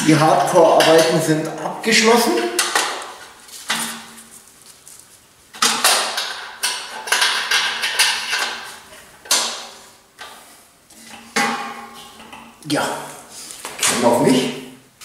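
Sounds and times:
metal bucket clanking on steel: 0:00.0 - 0:04.1, 0:05.6 - 0:08.7, 0:11.0 - 0:12.6.

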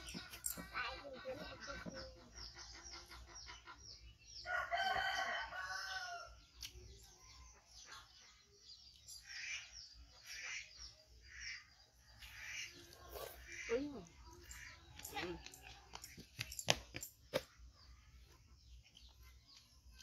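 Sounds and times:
rooster crowing: 0:04.5 - 0:06.3.

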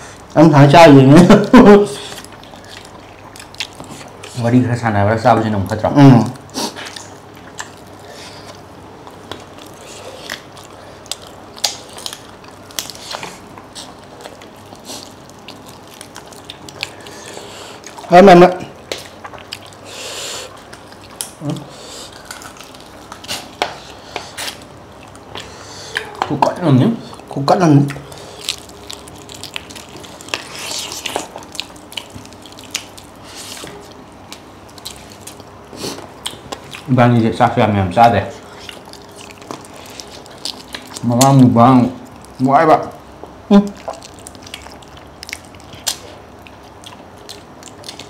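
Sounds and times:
people chewing close to microphones: 0:00.0 - 0:48.0.

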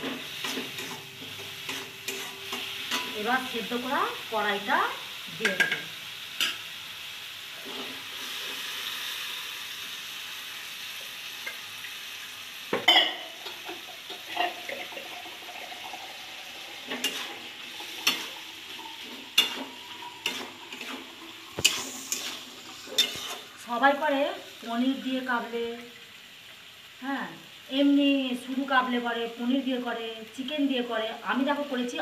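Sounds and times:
metal spatula clanking on pan: 0:00.0 - 0:03.2, 0:05.4 - 0:06.6, 0:18.0 - 0:21.0, 0:22.9 - 0:23.4
spatula knocking and scraping pan: 0:00.0 - 0:03.2, 0:16.9 - 0:17.4, 0:18.0 - 0:23.4
chickpeas sizzling in oil: 0:00.0 - 0:32.0.

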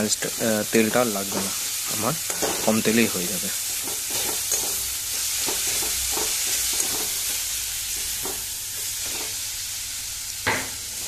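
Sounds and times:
onions sizzling in oil: 0:00.0 - 0:11.0
spoon scraping pan: 0:00.7 - 0:09.4.

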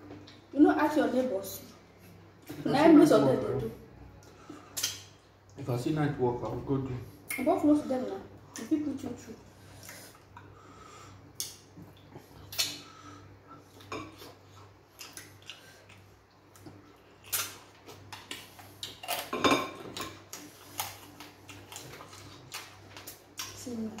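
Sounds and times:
wet chewing sounds: 0:13.6 - 0:24.0.

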